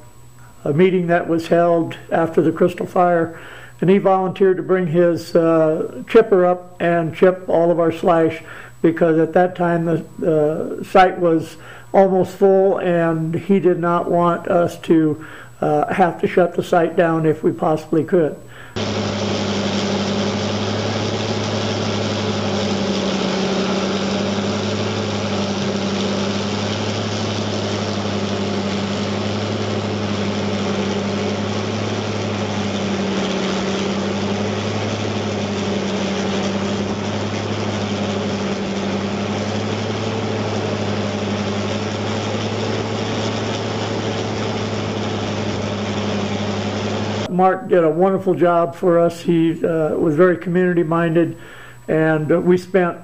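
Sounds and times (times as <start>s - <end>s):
grinder engine hum: 18.5s - 47.3s.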